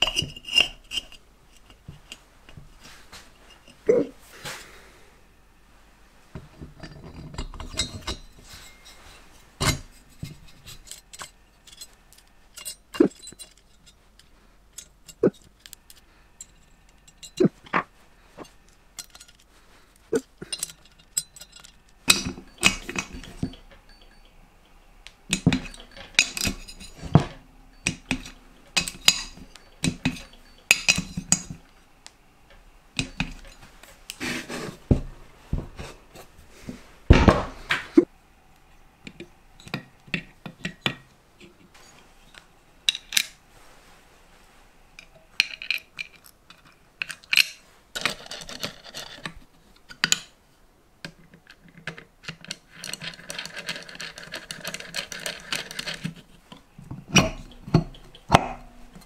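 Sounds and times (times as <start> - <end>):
metal tools clinking on metal: 0.0 - 2.3, 6.7 - 17.7, 18.4 - 19.5, 20.1 - 31.8, 32.5 - 34.2, 45.0 - 49.4, 51.7 - 59.0.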